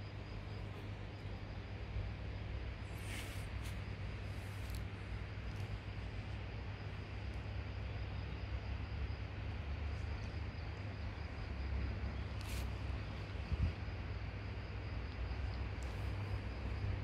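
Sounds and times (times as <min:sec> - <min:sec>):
even hiss: 0:02.8 - 0:06.0, 0:12.3 - 0:13.3.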